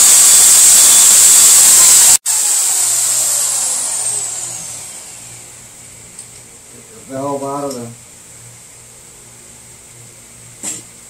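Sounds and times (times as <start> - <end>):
electric drill whining: 0.0 - 5.6.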